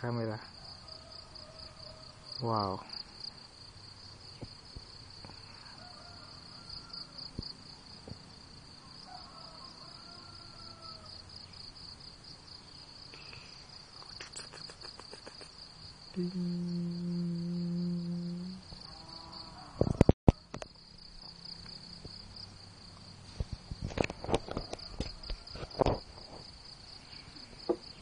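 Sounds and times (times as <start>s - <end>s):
insects chirring: 0.0s - 28.0s
loud steady low tone: 16.2s - 18.6s.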